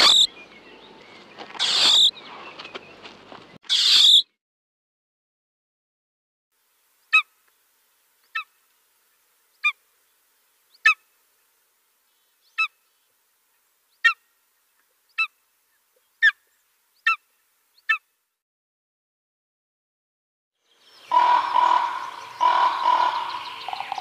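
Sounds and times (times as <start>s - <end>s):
eagle calling: 0.0s - 0.4s, 1.6s - 2.2s, 3.7s - 4.2s, 21.0s - 24.0s.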